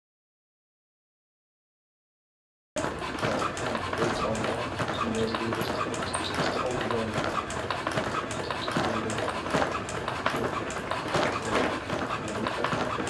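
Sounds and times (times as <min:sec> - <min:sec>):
robot feet tapping on floor mat: 0:02.8 - 0:13.0.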